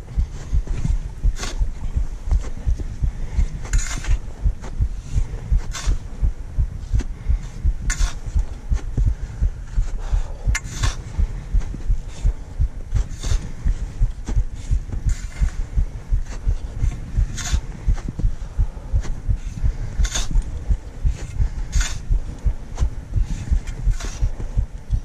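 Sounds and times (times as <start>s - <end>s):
footsteps thudding: 0.0s - 25.0s
sharp scrape: 1.4s - 1.6s, 3.7s - 6.1s, 7.9s - 8.9s, 10.6s - 11.1s, 13.0s - 13.6s, 14.2s - 15.6s, 16.2s - 18.1s, 19.9s - 20.5s, 21.1s - 22.1s, 23.2s - 24.4s.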